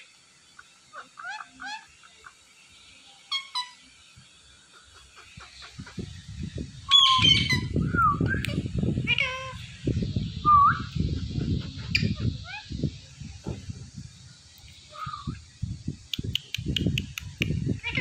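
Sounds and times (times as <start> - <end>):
parakeets chirping and squawking: 0.9 - 2.4, 3.3 - 3.8, 4.6 - 7.8, 8.5 - 13.7
low rumbling noise: 5.4 - 18.0.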